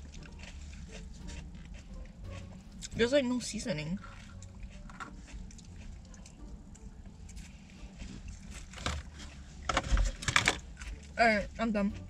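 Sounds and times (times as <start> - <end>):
person chewing: 0.0 - 3.0, 4.0 - 11.2
low steady hum: 0.0 - 12.0.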